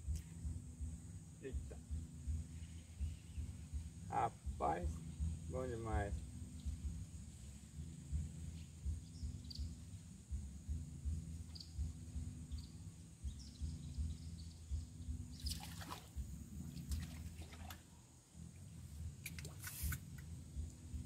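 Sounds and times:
low rumble: 0.0s - 15.4s
steady high hiss: 0.0s - 21.0s
faint bird chirps: 2.3s - 5.4s, 6.4s - 17.3s.

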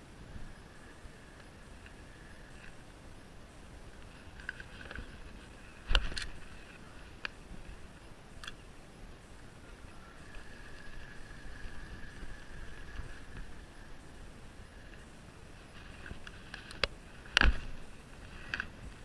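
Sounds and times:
wind: 0.0s - 19.0s
fishing reel whirring: 10.0s - 15.0s.

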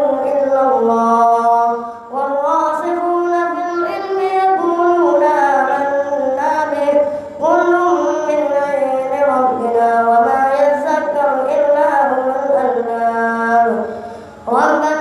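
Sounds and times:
boy chanting recitation: 0.0s - 15.0s.

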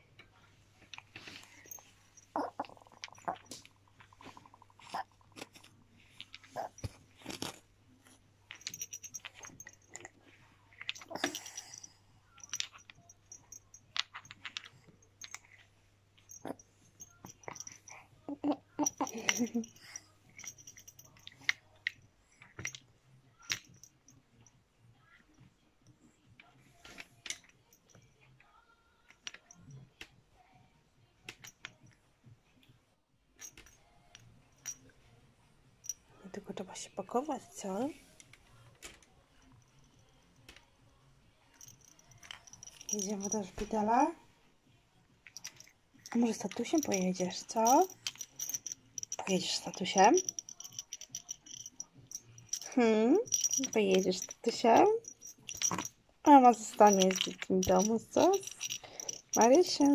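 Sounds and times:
light high tinkling: 0.1s - 26.0s, 26.6s - 29.9s, 33.4s - 35.1s, 35.8s - 44.3s, 45.2s - 59.9s
bead toy clicking and clacking: 0.9s - 7.6s, 8.5s - 10.2s, 10.8s - 15.6s, 16.2s - 22.8s, 23.4s - 24.0s, 41.6s - 43.8s, 45.3s - 59.9s.

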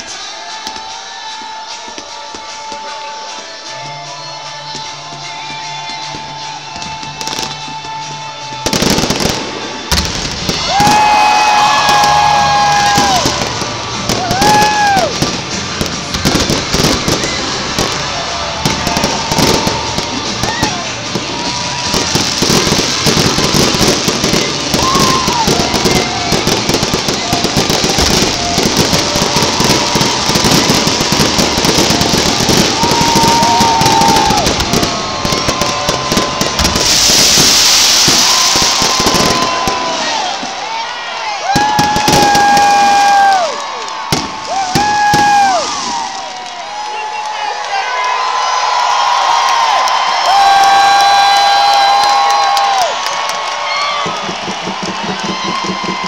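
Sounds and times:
fireworks popping and crackling: 0.0s - 56.0s
music playing: 0.0s - 56.0s
loud hissing rush of fountains: 8.7s - 47.6s.

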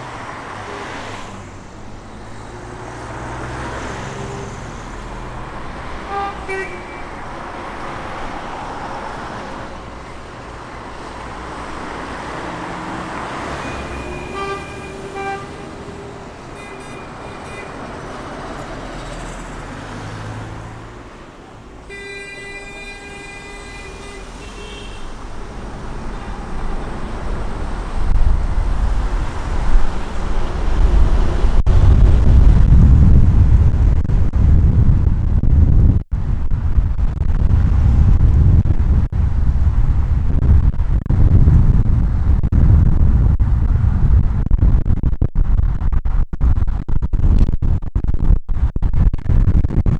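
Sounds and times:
passing cars and buses: 0.0s - 44.8s
short horn toots: 6.0s - 7.2s, 13.5s - 17.8s
loud low rumble: 26.8s - 49.9s.

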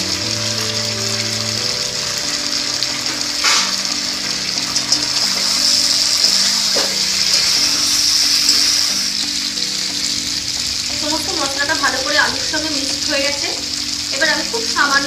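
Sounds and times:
potatoes sizzling in oil: 0.0s - 15.0s
soft background music: 0.0s - 15.0s
spatula scraping a pan: 3.0s - 9.7s.

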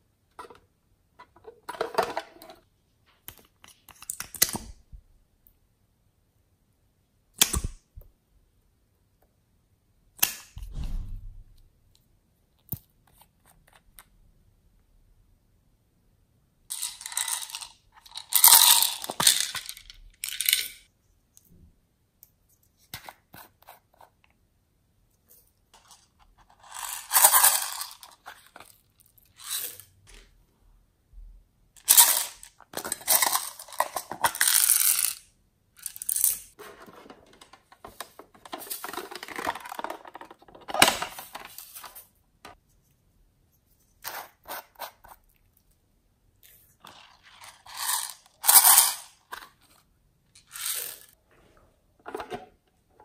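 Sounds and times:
plastic beads rattling in tub: 16.7s - 20.9s, 26.6s - 28.3s, 31.8s - 35.2s, 47.0s - 49.2s, 50.4s - 51.2s.

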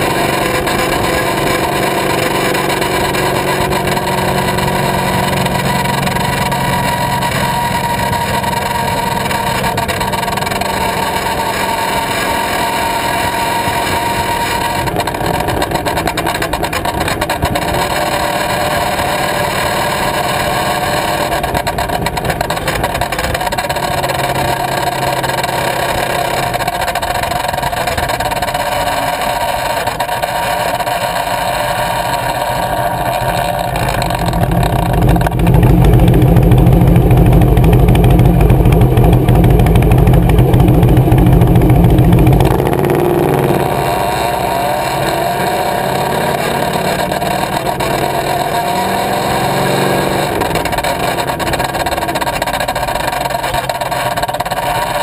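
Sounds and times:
motorcycle engine and exhaust: 0.0s - 55.0s.

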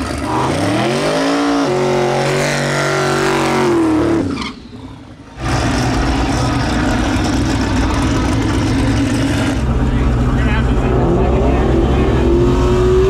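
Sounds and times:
car engine revving: 0.0s - 13.0s
car engine idling loudly: 4.8s - 12.4s.

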